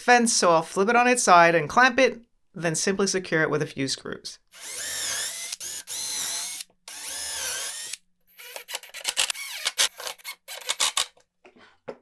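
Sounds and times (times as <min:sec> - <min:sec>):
cordless drill boring into plywood: 0:04.5 - 0:11.1
impact driver rapid clicks: 0:04.6 - 0:11.1.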